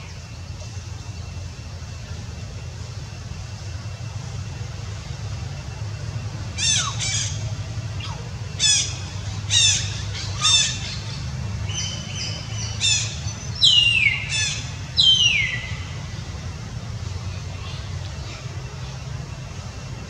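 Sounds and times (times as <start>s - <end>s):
steady low rumble: 0.0s - 20.0s
high-pitched squawking calls: 6.5s - 16.0s.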